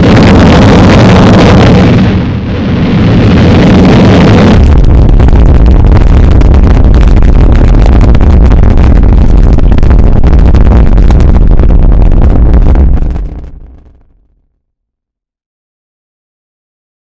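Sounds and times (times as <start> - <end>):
rocket engine roar: 0.0 - 14.2
crackling rattle: 4.6 - 14.2.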